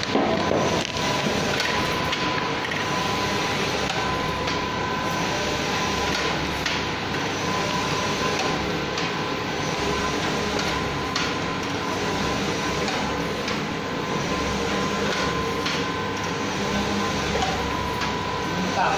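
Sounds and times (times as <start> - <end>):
printer machine noise: 0.0 - 18.9.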